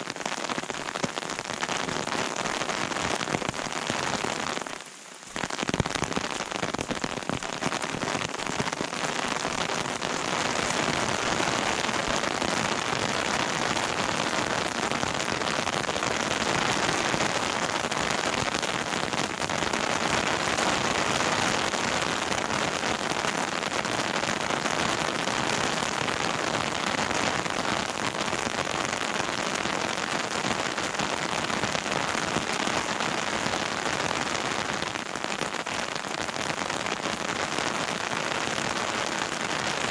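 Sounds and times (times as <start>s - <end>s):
raindrops ticking: 0.0s - 20.8s
steady rain: 0.0s - 39.9s.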